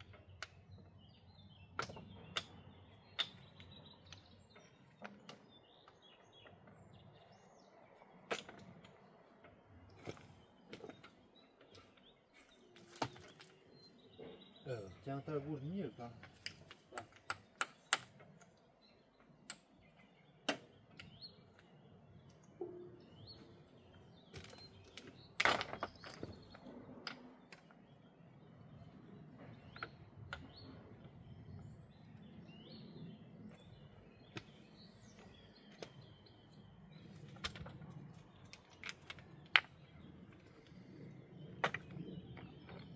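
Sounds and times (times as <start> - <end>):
birds chirping: 0.0 - 42.9
stones clacking together: 1.7 - 6.7, 8.2 - 13.7, 16.1 - 18.6, 19.2 - 21.7, 24.2 - 27.8, 33.5 - 42.9.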